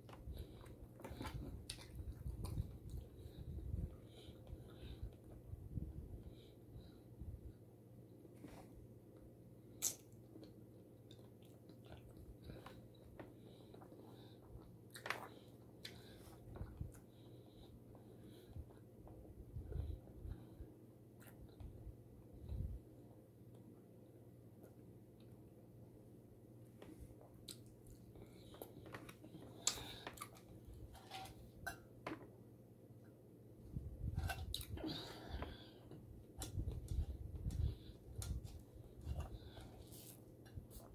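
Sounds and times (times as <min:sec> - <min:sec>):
person chewing: 0:00.2 - 0:03.3, 0:09.8 - 0:17.1, 0:27.2 - 0:31.8, 0:34.2 - 0:35.1.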